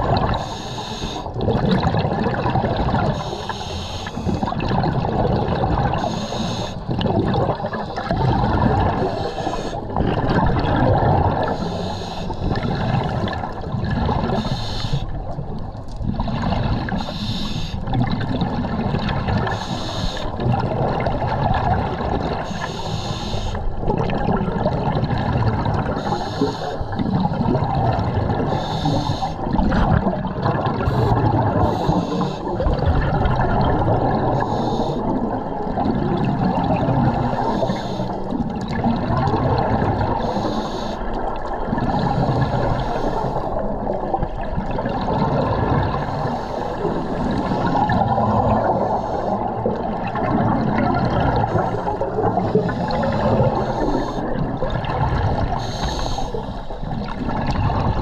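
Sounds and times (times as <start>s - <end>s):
low rumble of water: 0.0s - 58.0s
scuba regulator hiss and bubbles: 0.2s - 1.4s, 3.0s - 5.0s, 5.9s - 10.0s, 11.0s - 13.4s, 14.0s - 15.4s, 16.4s - 18.0s, 19.0s - 21.0s, 22.2s - 23.8s, 25.6s - 27.4s, 28.0s - 29.9s, 30.7s - 32.8s, 34.0s - 35.9s, 36.8s - 38.5s, 39.2s - 44.2s, 45.8s - 54.7s, 55.4s - 57.2s.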